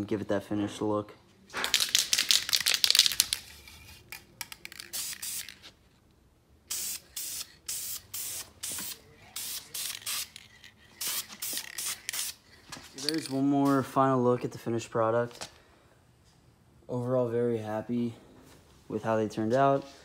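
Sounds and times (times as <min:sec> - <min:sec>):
aerosol spray can hissing bursts: 0:04.7 - 0:05.6, 0:06.7 - 0:12.4.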